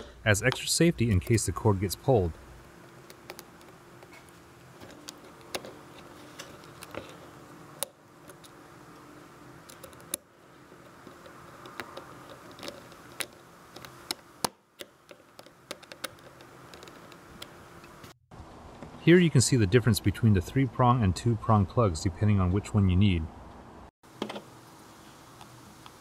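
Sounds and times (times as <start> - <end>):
faint steady hum: 0.0 - 26.0
screwdriver clicks and taps: 11.2 - 17.5.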